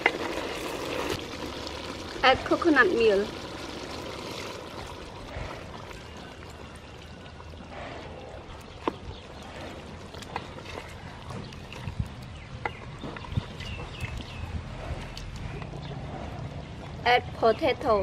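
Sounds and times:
liquid pouring into a pot: 0.0s - 7.7s.

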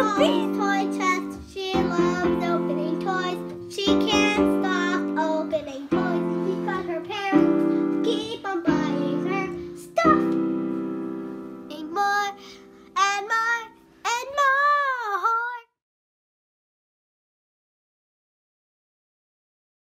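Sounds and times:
person singing a jingle: 0.0s - 11.0s
keyboard chords: 0.0s - 13.6s.

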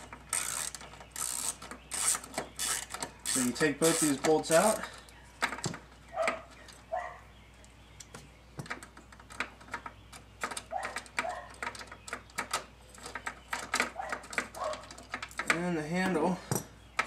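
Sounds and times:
ratchet clicking: 0.0s - 4.8s.

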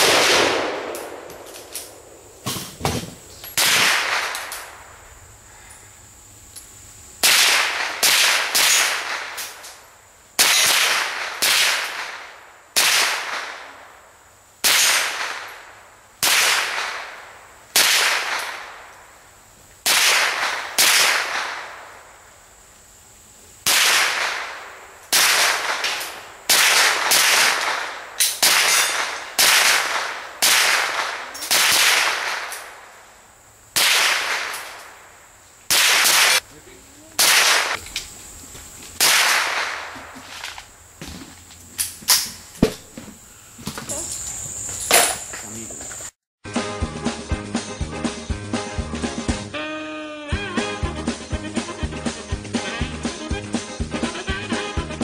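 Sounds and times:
rifle shots: 0.0s - 2.6s, 3.6s - 4.9s, 7.2s - 9.8s, 10.4s - 13.9s, 14.6s - 18.9s, 19.8s - 22.0s, 23.6s - 33.0s, 33.8s - 35.1s, 35.7s - 36.4s, 37.2s - 37.8s, 39.0s - 40.5s.

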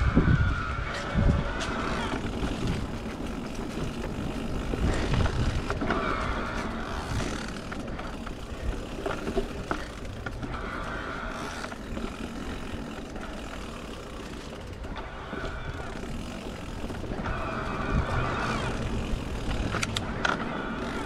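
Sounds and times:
bike tyres rumbling on dirt: 0.0s - 21.0s
sharp clicks: 19.4s - 20.5s.

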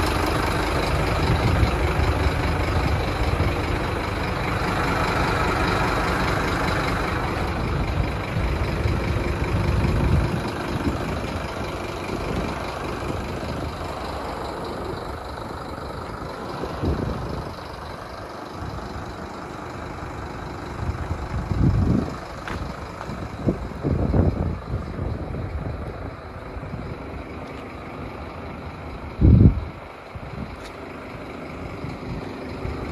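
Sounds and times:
diesel truck engine idling: 0.0s - 32.9s
wind buffeting microphone: 0.9s - 3.7s, 7.2s - 14.1s, 16.2s - 17.8s, 20.7s - 27.3s, 28.0s - 30.6s.

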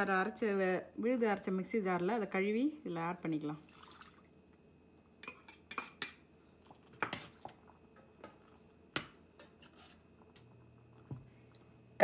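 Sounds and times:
metal spoon scraping a pan: 5.2s - 6.2s, 9.4s - 10.1s.

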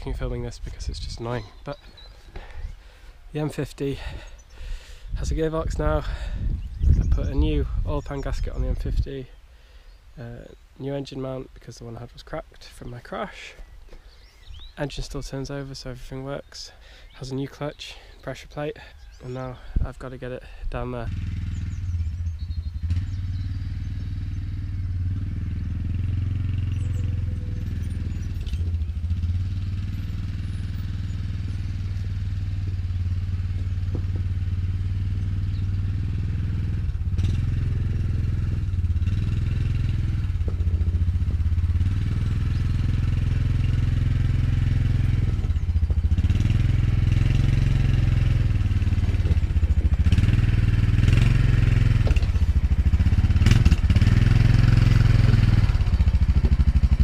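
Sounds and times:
quad bike engine running: 21.0s - 57.0s.

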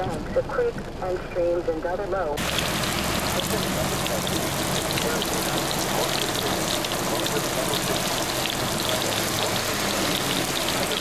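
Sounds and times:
heavy rain on pavement: 2.4s - 11.0s.

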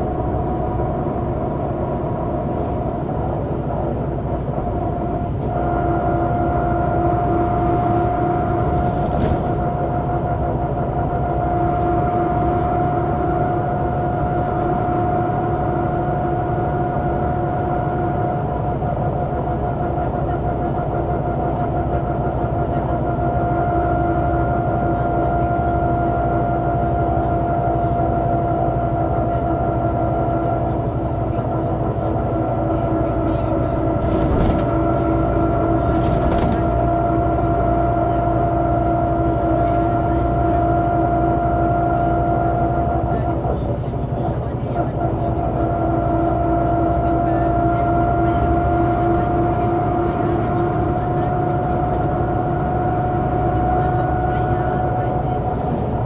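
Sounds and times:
bus engine drone: 0.0s - 56.0s.

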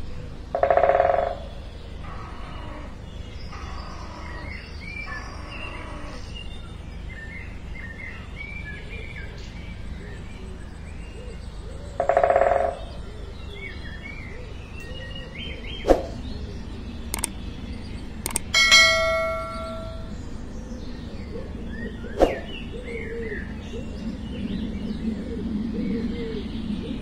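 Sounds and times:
small birds chirping: 0.0s - 27.0s
sharp clicks: 17.1s - 17.4s, 18.2s - 18.6s
bell chime: 18.6s - 20.1s.

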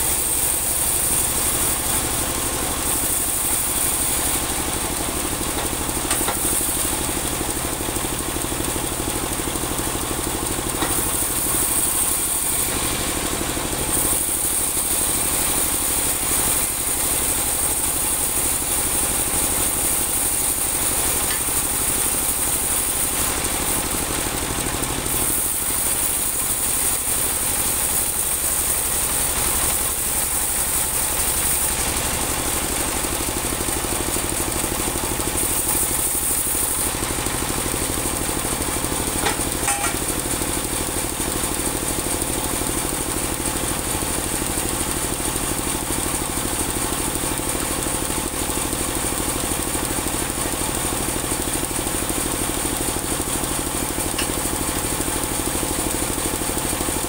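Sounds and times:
band blade sawing log: 0.0s - 7.8s
sawmill engine running: 0.0s - 57.0s.

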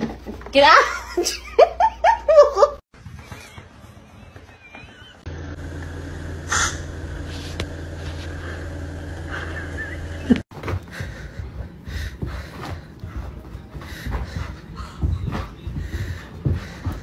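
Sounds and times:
soft thumps and scuffs: 10.5s - 17.0s.

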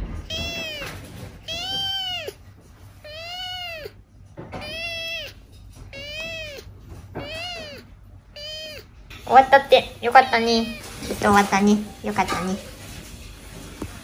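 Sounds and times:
kitten meowing: 0.2s - 11.2s.

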